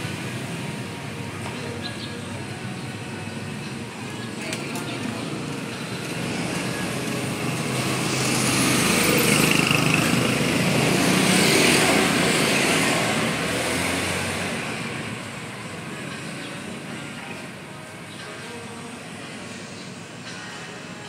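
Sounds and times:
motor vehicle passing by: 0:04.8 - 0:15.1.

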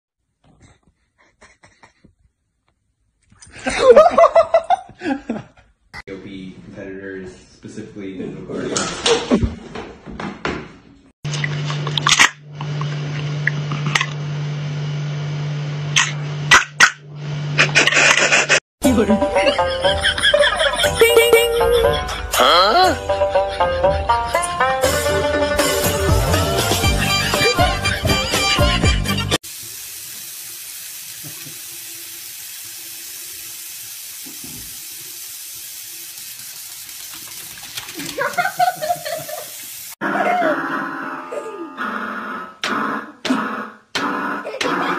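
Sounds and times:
faucet water splashing into basin: 0:29.4 - 0:40.0.

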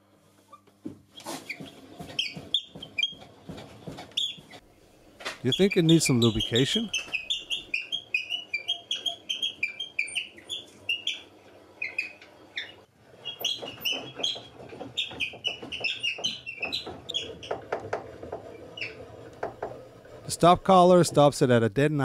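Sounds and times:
saw mechanism squeaking: 0:01.2 - 0:03.3, 0:04.1 - 0:04.6, 0:05.4 - 0:19.3.

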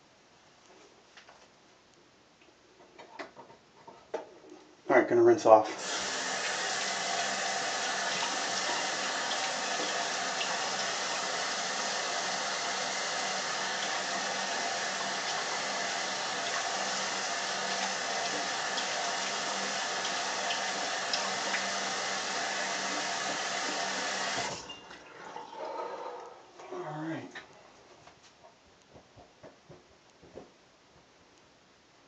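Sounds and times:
sink tap running: 0:05.8 - 0:25.0
face rinsing: 0:05.8 - 0:25.6.

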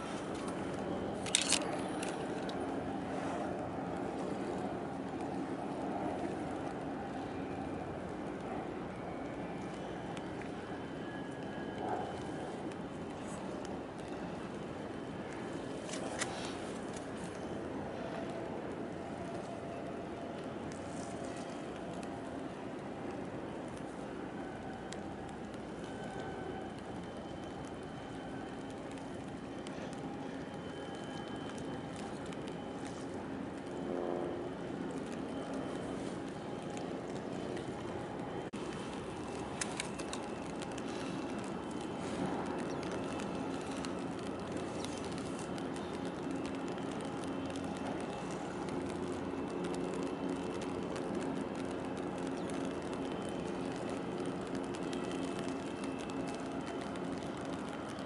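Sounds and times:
distant machinery whining: 0:00.0 - 0:58.0
ship engine drone: 0:21.5 - 0:57.9.

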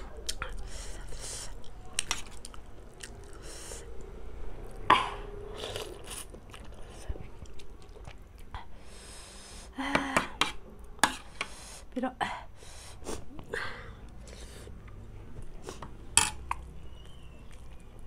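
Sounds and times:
person chewing noodles: 0:00.2 - 0:04.1, 0:05.5 - 0:08.6
cutlery clicking on plates: 0:16.2 - 0:16.6.

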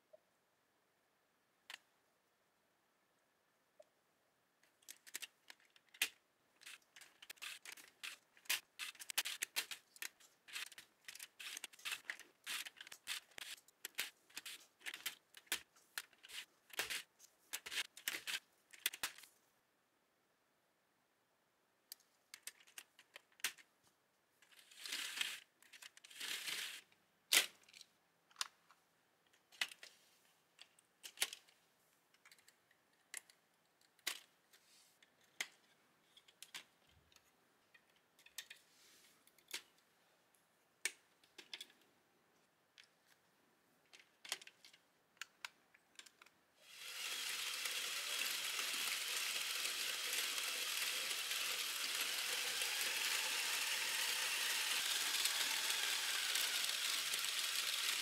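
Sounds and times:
plastic parts clicking: 0:04.6 - 0:19.3, 0:21.9 - 0:23.7, 0:24.4 - 0:28.7, 0:29.3 - 0:29.9, 0:30.6 - 0:34.4, 0:35.0 - 0:38.6, 0:39.2 - 0:39.8, 0:40.8 - 0:41.8, 0:43.9 - 0:58.0.

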